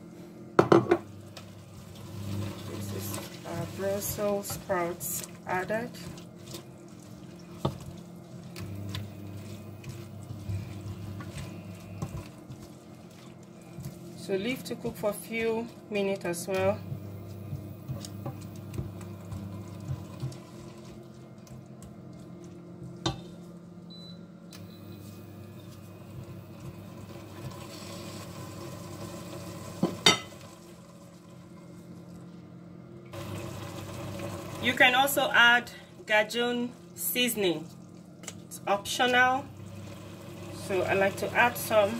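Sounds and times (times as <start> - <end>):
steady low hum: 0.0 - 33.2
wet squishing of stirred food: 1.2 - 23.9, 25.0 - 28.7, 36.0 - 40.0.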